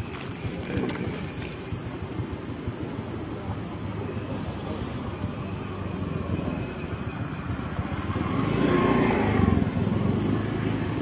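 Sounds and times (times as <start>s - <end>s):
vehicle engine passing by: 4.6s - 11.0s.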